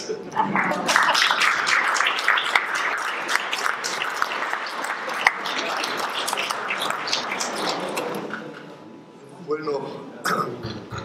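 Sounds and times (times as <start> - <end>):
audience applause: 0.4 - 8.4.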